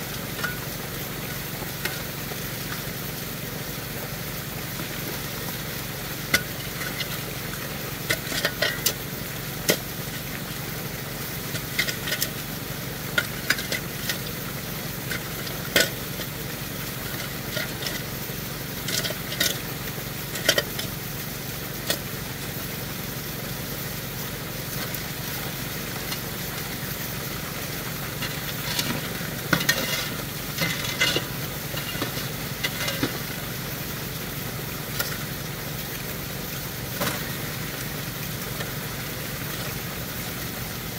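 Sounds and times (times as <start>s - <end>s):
engine humming: 0.0s - 40.9s
water rushing through sluice: 0.0s - 40.9s
shovel scraping gravel: 8.1s - 9.0s, 18.8s - 19.6s, 28.0s - 33.4s
stones clattering in metal hopper: 8.1s - 9.0s, 11.5s - 12.4s, 18.8s - 19.6s, 28.1s - 33.4s, 37.0s - 37.4s.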